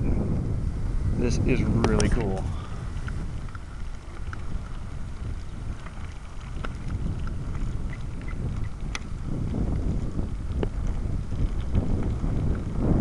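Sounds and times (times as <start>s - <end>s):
wind buffeting microphone: 0.0s - 13.0s
light ticks: 3.0s - 9.1s.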